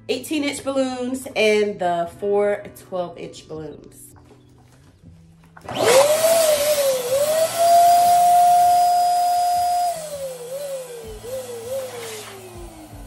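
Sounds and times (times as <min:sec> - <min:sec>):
balloon pump blowing air: 0:05.7 - 0:13.0.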